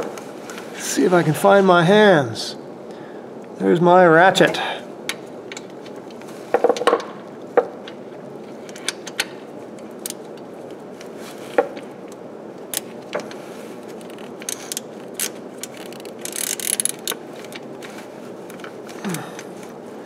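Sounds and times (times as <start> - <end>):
steady low hum: 0.0 - 20.0
ratchet clicks: 14.0 - 17.2.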